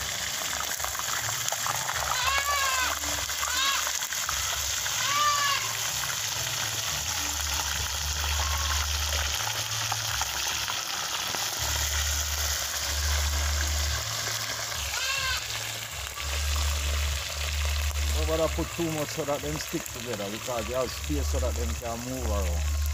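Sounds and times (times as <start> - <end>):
fish sizzling in hot oil: 0.0 - 22.9
low rumble: 22.5 - 22.9.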